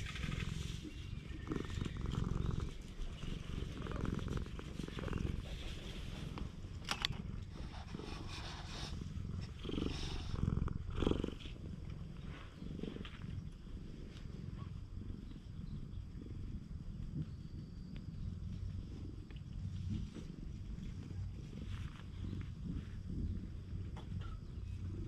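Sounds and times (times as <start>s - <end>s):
cat purring: 0.0s - 25.0s
rustles: 0.0s - 25.0s.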